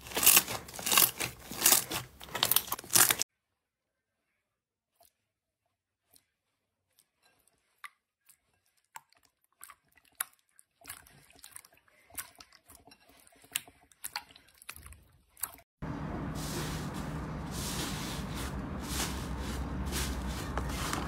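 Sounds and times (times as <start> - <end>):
slime squelching: 0.0 - 3.2, 6.0 - 15.6.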